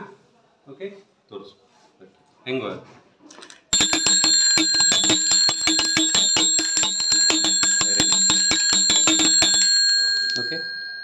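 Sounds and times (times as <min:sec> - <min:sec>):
alarm rattling ring on bicycle bell: 0:03.8 - 0:11.0.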